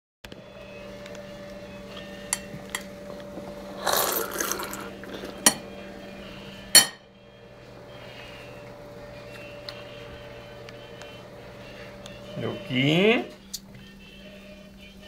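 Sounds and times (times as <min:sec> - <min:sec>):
steady low hum: 0:00.3 - 0:15.0
toddler spitting milk splash: 0:03.8 - 0:05.3.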